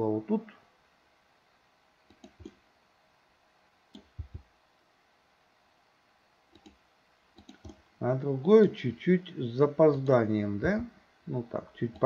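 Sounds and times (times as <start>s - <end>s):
mouse and keyboard clicks: 2.1s - 2.6s, 7.4s - 7.8s.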